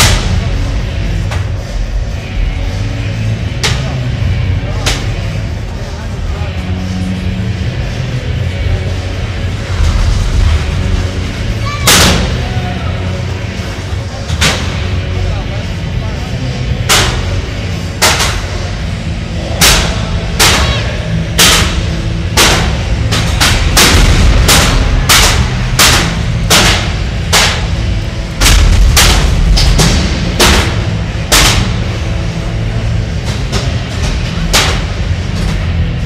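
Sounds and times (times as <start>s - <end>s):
low arena rumble: 0.0s - 36.0s
metal-on-metal robot impacts: 19.4s - 35.8s.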